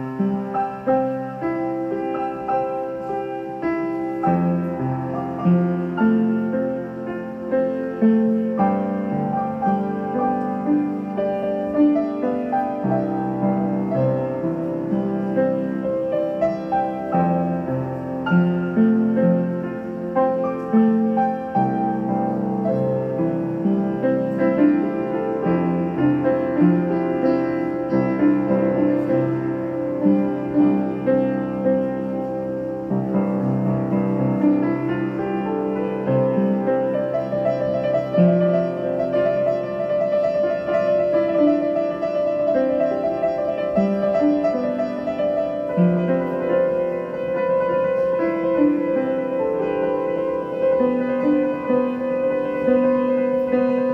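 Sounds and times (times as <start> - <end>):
piano music: 0.0 - 53.9.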